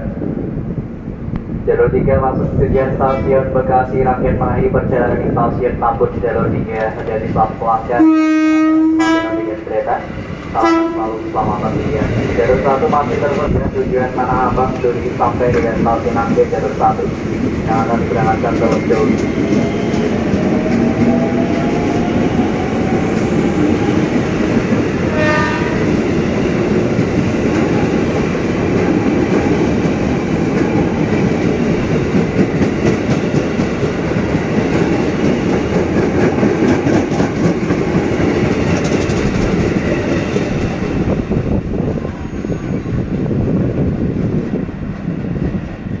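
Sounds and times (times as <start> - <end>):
train wheels rumbling on rails: 0.0 - 46.0
train horn blast: 8.0 - 9.6, 10.6 - 11.4, 25.1 - 25.9.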